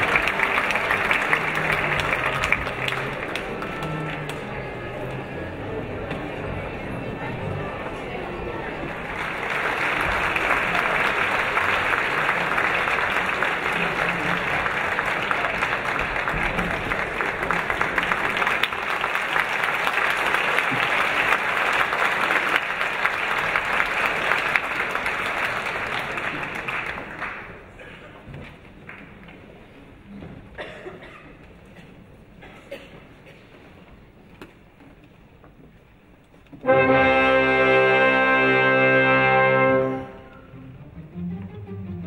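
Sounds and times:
audience applauding: 0.0 - 5.2, 8.4 - 27.8.

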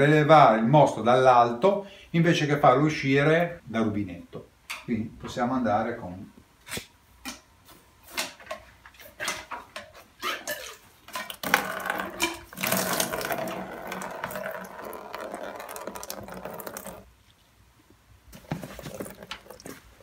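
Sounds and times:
liquid pouring into plastic bucket: 10.6 - 17.1, 18.3 - 20.0.

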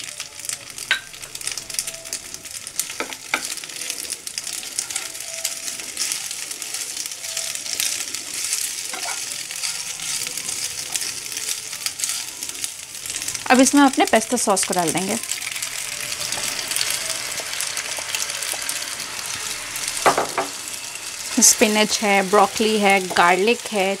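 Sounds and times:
pasta sizzling in oil: 0.0 - 24.0
spatula scraping pan: 2.8 - 13.5, 15.6 - 23.9.

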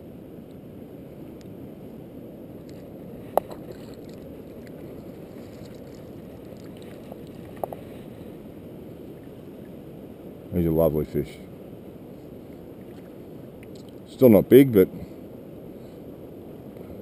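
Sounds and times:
water sloshing around a landing net: 3.3 - 7.8.

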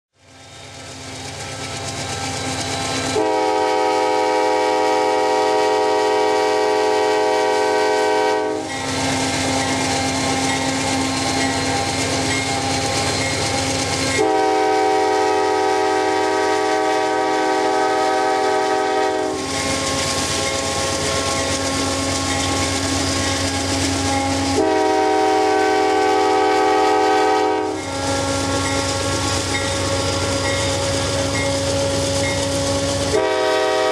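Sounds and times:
train running along track: 0.1 - 33.9
locomotive air horn blasts: 3.0 - 11.1, 14.1 - 20.0, 23.5 - 33.9.

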